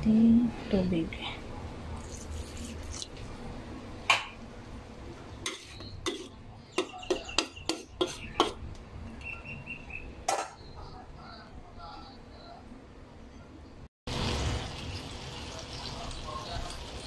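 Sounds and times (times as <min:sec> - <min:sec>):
metal spatula scraping wok: 0:05.4 - 0:06.4.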